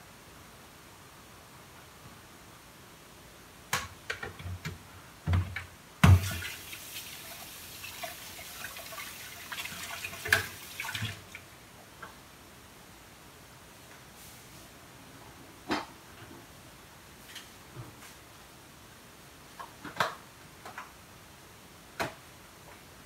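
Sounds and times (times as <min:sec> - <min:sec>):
kitchen tap running: 0:06.0 - 0:11.4.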